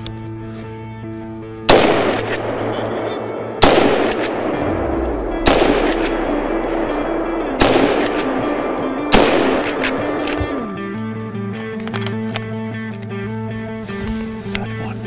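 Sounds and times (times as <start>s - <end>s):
background music: 0.0s - 15.0s
rifle shots echoing: 1.7s - 10.6s.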